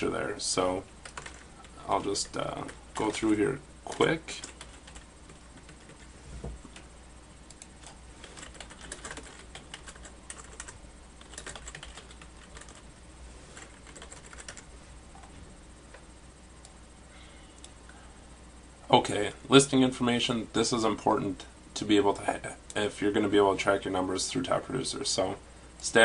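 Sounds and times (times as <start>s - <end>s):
typing on a computer keyboard: 1.0s - 1.4s, 3.0s - 5.0s, 7.5s - 12.8s, 13.6s - 14.6s.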